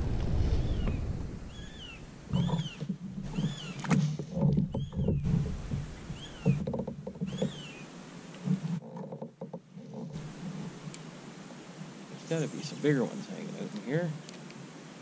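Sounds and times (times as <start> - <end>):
bird calling: 0.0 - 8.0
knocks and rubs on kayak hull: 2.3 - 7.7, 8.4 - 10.9.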